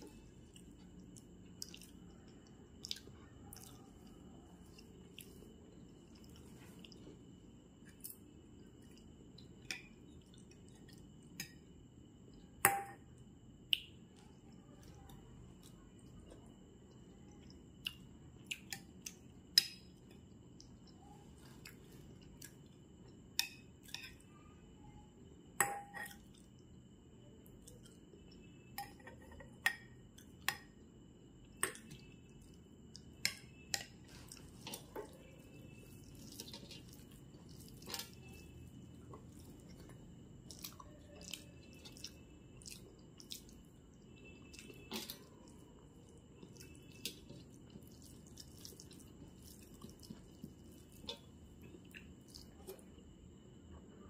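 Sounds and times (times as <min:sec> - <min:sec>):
chewing: 0:00.0 - 0:07.2, 0:20.1 - 0:23.2, 0:34.0 - 0:53.0
faint high whine: 0:00.0 - 0:54.0.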